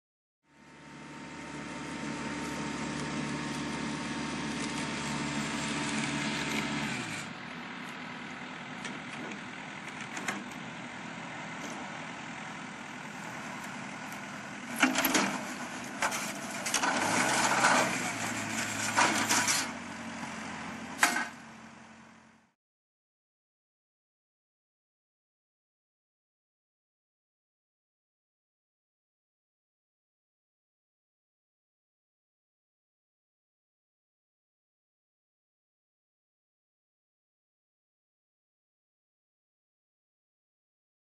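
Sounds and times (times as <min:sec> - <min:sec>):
tractor engine running: 0:00.5 - 0:22.5.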